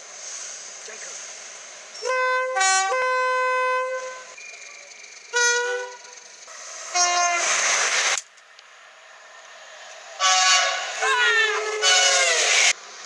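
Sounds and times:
two-tone train horn blasts: 2.0 - 4.4, 5.3 - 6.2, 6.9 - 7.5, 10.2 - 12.5.

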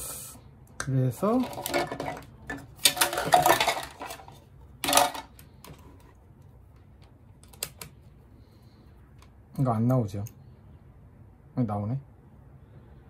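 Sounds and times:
tools clattering on a workbench: 1.3 - 6.0.

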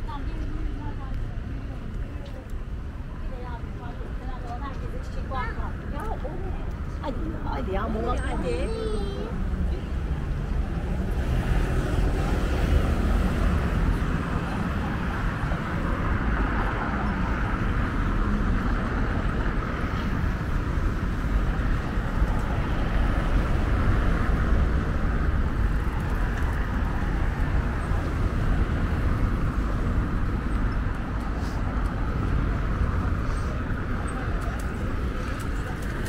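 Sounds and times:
road traffic noise: 0.0 - 36.0.

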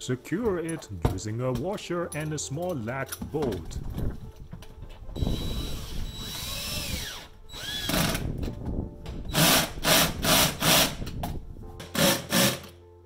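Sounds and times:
cordless drill whining in bursts: 5.2 - 8.2.

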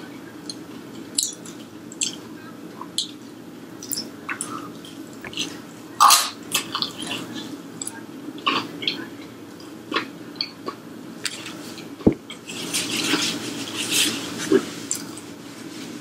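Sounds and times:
steady low hum: 0.0 - 16.0
person chewing with wet smacks: 0.4 - 3.2, 3.8 - 5.6, 6.5 - 15.2.

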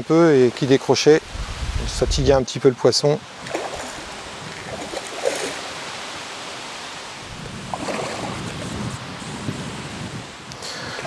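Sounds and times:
fish splashing in water: 3.4 - 5.9, 7.6 - 8.5.

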